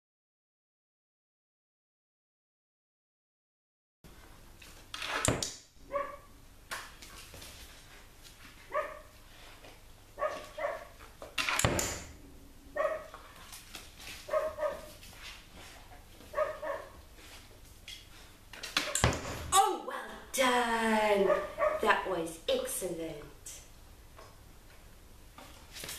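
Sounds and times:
dog barking: 5.9 - 6.3, 8.7 - 9.2, 10.2 - 11.0, 12.8 - 13.2, 14.3 - 14.9, 16.3 - 17.0, 21.2 - 21.8.

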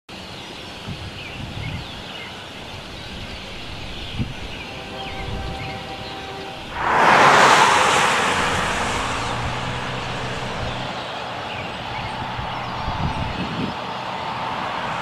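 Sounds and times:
small birds chirping: 0.2 - 6.2
low uneven rumble: 2.6 - 11.0, 11.6 - 13.6.

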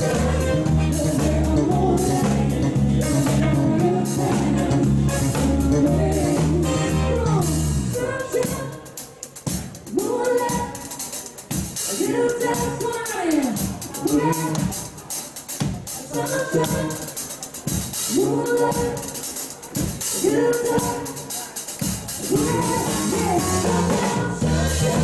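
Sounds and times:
woman singing: 0.0 - 9.2, 9.9 - 11.2, 11.9 - 14.9, 16.0 - 17.3, 18.1 - 21.6, 22.2 - 25.0
pop band playing: 0.0 - 25.0.

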